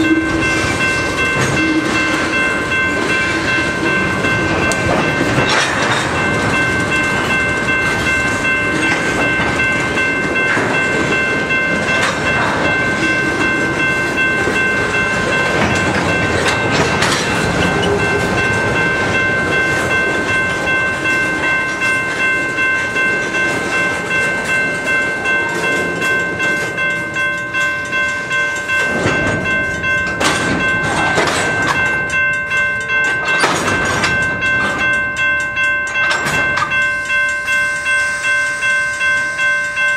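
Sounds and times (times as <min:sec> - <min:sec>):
high-pitched ringing: 0:00.0 - 0:39.9
train wheels clicking over rail joints: 0:00.3 - 0:37.4.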